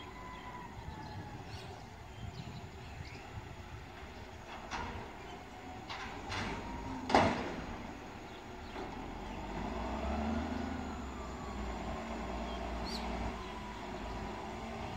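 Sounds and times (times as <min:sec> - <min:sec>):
engine with rising whine: 0:05.2 - 0:14.9.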